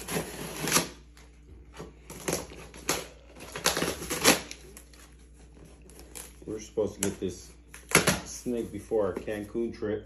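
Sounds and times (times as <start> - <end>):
paper and cardboard rustling: 8.0 - 9.9.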